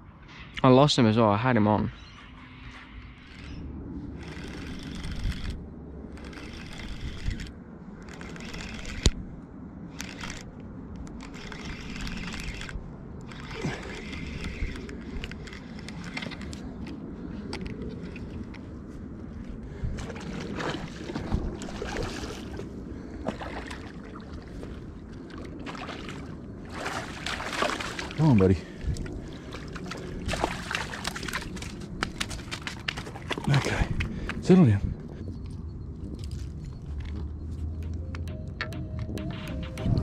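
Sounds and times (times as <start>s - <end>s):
fishing rod and reel handling: 10.0s - 18.6s.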